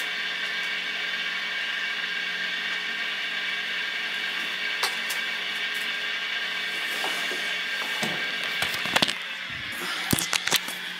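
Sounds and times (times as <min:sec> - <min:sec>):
radio speaker hiss and hum: 0:08.4 - 0:10.9.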